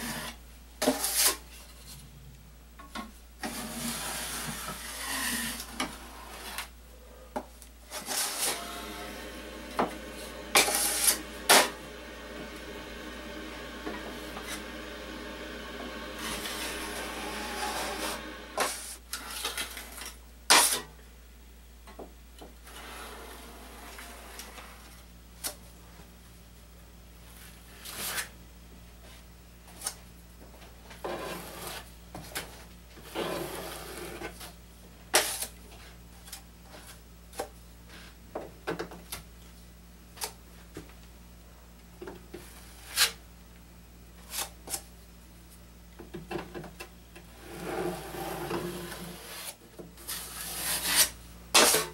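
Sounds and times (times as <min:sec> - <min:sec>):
drywall knife scraping metal: 0:00.0 - 0:01.4, 0:03.4 - 0:06.7, 0:07.9 - 0:08.8, 0:10.3 - 0:11.8, 0:16.1 - 0:19.8, 0:31.0 - 0:31.9, 0:47.4 - 0:51.9
low hum: 0:08.6 - 0:18.6.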